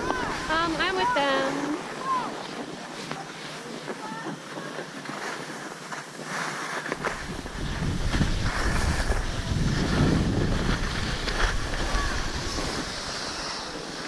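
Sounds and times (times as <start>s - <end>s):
skis hissing over snow: 0.0s - 14.0s
wind buffeting microphone: 7.0s - 14.0s.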